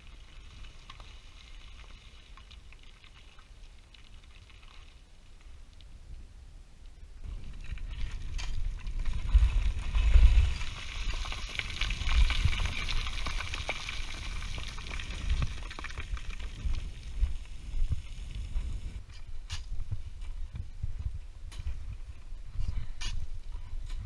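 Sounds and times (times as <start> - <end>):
small stones clicking: 7.6 - 17.4.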